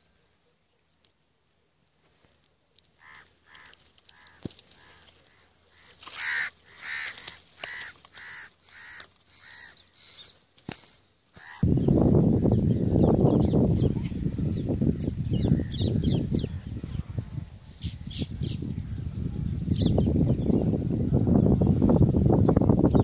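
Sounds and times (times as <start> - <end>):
crow cawing: 3.0 - 10.3, 11.3 - 11.7.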